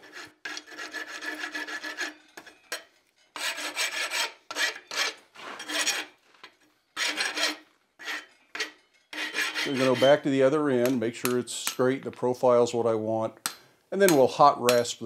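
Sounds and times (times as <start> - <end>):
rasp scraping hot steel: 0.0 - 6.2, 6.9 - 11.1.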